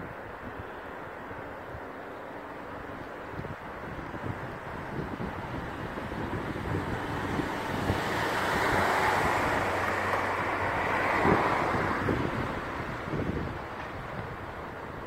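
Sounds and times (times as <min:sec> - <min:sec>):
wind buffeting microphone: 0:00.0 - 0:15.0
car tyres hissing on wet road: 0:03.8 - 0:13.6.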